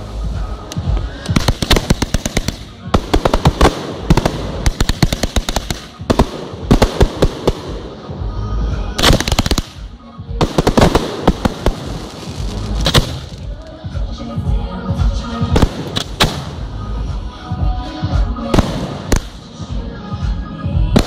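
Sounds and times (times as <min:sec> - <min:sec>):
fireworks crackling: 0:00.0 - 0:08.3, 0:08.9 - 0:13.7, 0:15.5 - 0:16.8, 0:18.5 - 0:19.6.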